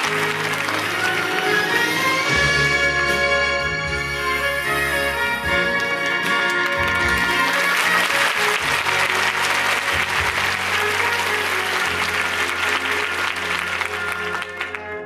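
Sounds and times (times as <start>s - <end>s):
audience applauding: 0.0s - 2.4s, 5.6s - 15.0s
upbeat show music: 0.0s - 15.0s.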